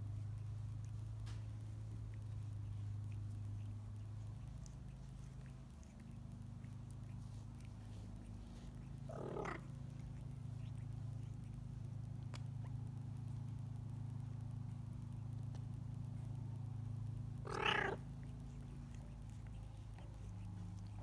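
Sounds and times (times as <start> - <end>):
kitten purring: 0.0 - 21.0
kitten mewing: 9.0 - 9.7, 17.4 - 18.0.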